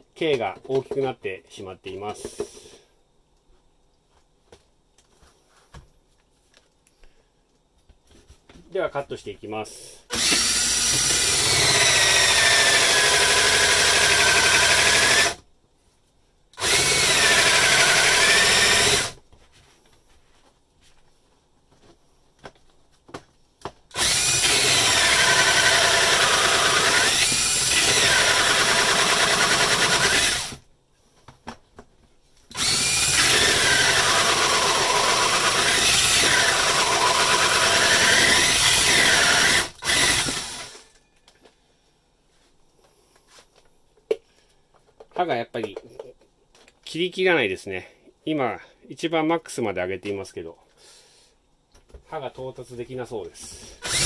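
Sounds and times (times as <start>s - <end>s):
cordless drill cutting into wood: 10.1s - 15.4s, 16.6s - 19.2s, 23.9s - 30.6s, 32.5s - 40.9s, 53.8s - 54.0s.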